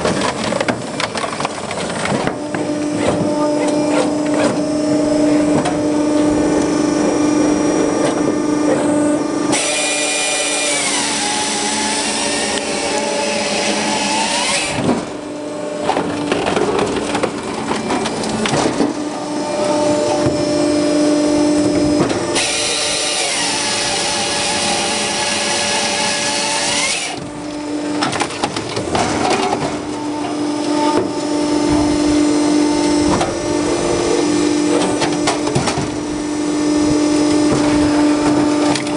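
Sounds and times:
hydraulic drive humming: 0:00.0 - 0:38.9
chainsaw cutting through log: 0:09.0 - 0:15.3, 0:22.3 - 0:28.0.

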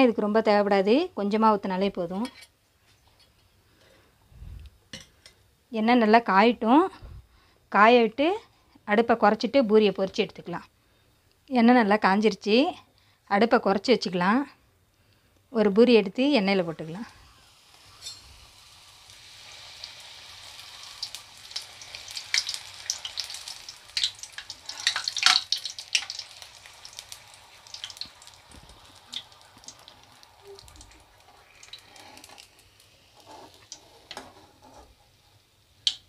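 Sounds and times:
oil sizzling with crackles and pops: 0:16.2 - 0:36.0.

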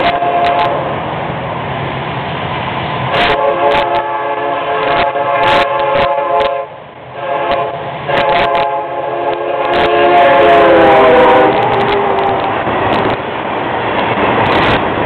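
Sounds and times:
locomotive air horn blasts: 0:00.0 - 0:00.9, 0:03.1 - 0:12.6.

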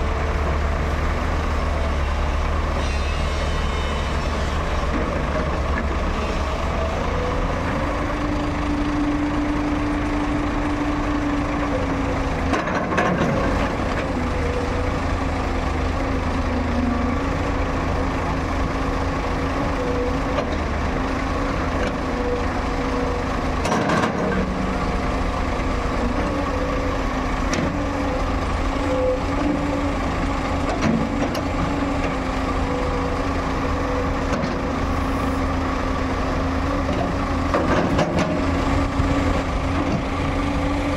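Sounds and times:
excavator diesel engine: 0:00.0 - 0:40.9
hydraulic whine: 0:02.8 - 0:04.8.

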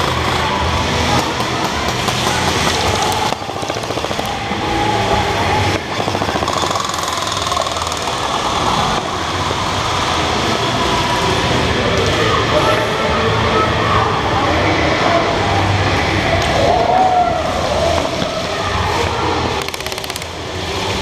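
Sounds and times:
airsoft rifle full-auto bursts: 0:19.6 - 0:20.3.

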